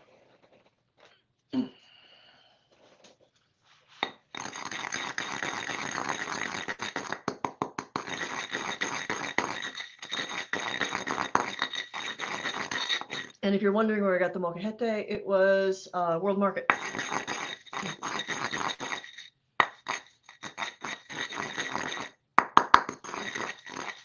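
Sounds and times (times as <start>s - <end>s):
gritty scraping with rapid clicks: 4.4s - 13.4s, 22.8s - 24.0s
stone mortar thump: 7.0s - 8.7s, 22.4s - 23.5s.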